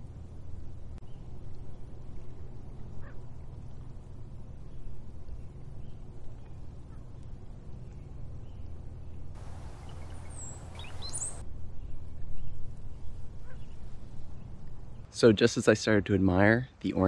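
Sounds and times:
steady low rumble: 0:00.0 - 0:15.1
faint bird chirps: 0:09.4 - 0:13.8.

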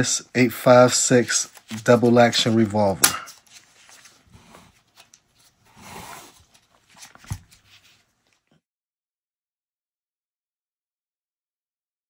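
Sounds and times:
soft rustle: 0:00.8 - 0:08.6.

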